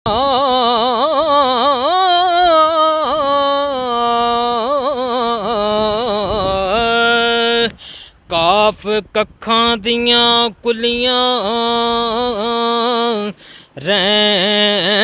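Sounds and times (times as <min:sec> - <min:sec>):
man singing: 0:00.1 - 0:15.0.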